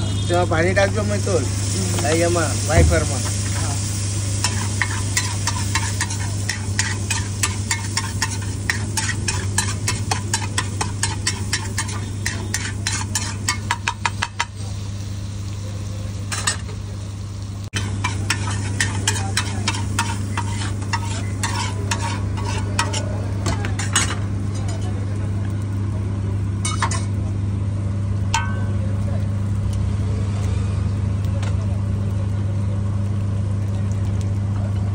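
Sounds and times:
egg sizzling: 0.0 - 34.9
spatula clinking on griddle: 4.4 - 14.6, 17.8 - 25.0, 26.6 - 27.2, 28.3 - 28.9.

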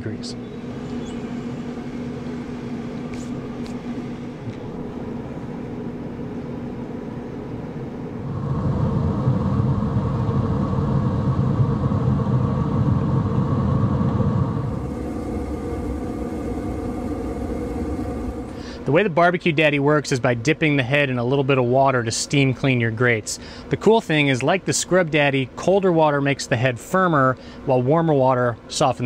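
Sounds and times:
grill fan humming: 0.0 - 29.0
low rumble: 0.4 - 19.9.

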